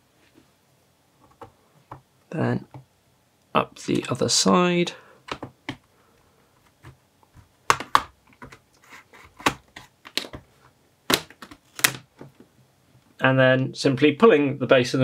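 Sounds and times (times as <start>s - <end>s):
plastic clips snapping loose: 11.1s - 12.0s.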